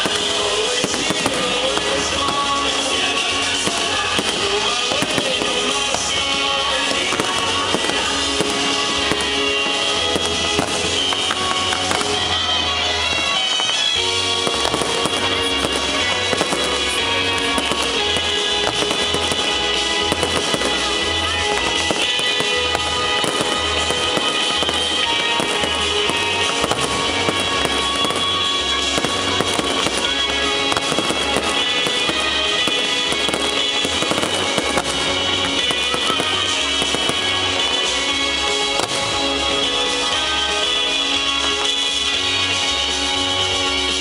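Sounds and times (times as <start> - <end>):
fireworks bursting and crackling: 0.0 - 44.0
music with pulsing bass beat: 0.0 - 44.0.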